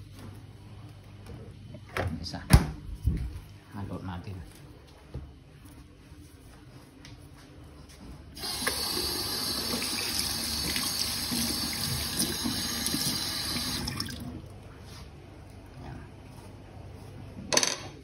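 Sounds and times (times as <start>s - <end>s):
tap water running into sink: 8.4s - 14.3s.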